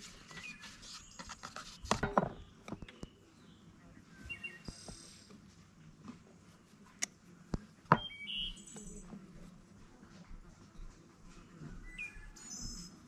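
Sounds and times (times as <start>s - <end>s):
birds chirping: 0.0s - 5.3s, 7.6s - 9.4s
outdoor background noise: 0.0s - 13.0s.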